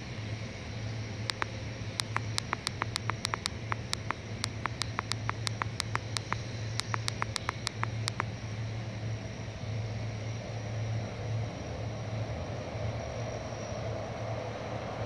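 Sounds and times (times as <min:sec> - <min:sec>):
high ticking animal calls: 0:01.3 - 0:08.3.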